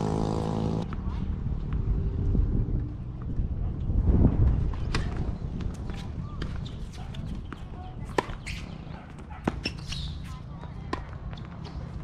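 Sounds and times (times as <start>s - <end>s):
wind rumble on microphone: 0.6s - 9.1s.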